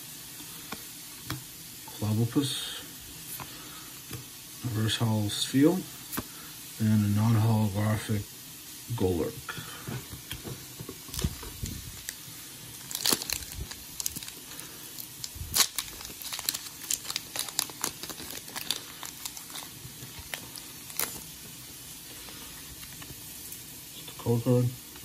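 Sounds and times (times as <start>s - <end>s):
foil wrapper crinkling: 10.9s - 23.2s.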